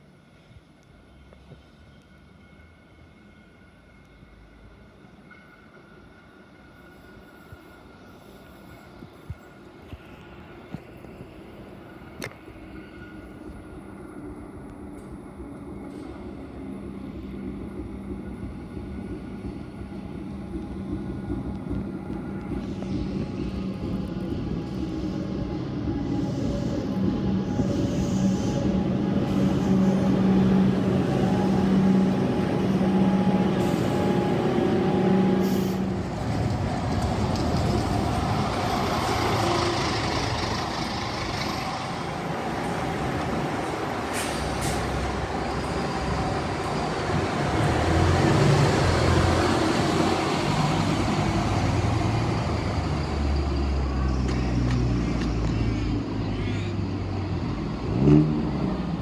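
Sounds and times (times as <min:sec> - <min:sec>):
electric train humming: 0:00.0 - 0:59.0
diesel bus passing: 0:28.3 - 0:59.0
air brakes hissing: 0:35.4 - 0:35.9, 0:44.0 - 0:45.7.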